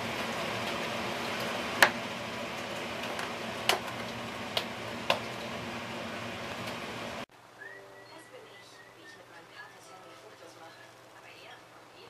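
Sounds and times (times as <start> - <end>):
food sizzling in a pan: 0.0 - 7.3.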